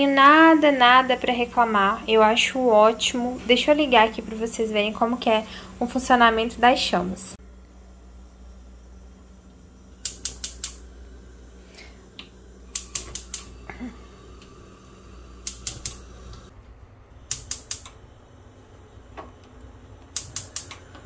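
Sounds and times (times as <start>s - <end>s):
gas stove igniter clicking: 9.5s - 11.1s, 11.7s - 16.5s, 17.2s - 18.1s, 19.0s - 21.0s.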